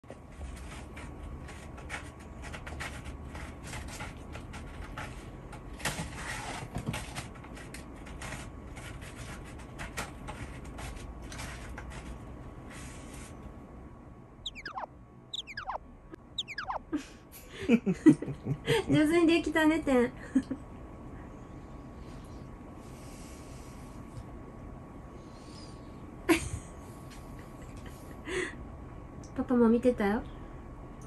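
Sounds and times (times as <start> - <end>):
falling whistle-like tones: 14.5 - 15.8, 16.4 - 16.8.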